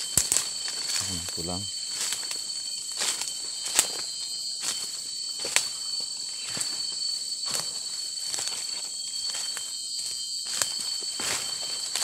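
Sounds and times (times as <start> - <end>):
footsteps on dry leaves: 0.0 - 9.6, 10.4 - 12.0
forest insects droning: 0.0 - 12.0.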